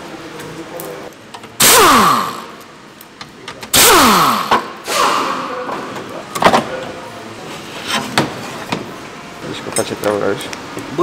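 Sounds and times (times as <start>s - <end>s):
impact wrench air hiss and whine: 1.6s - 2.6s, 3.7s - 5.8s.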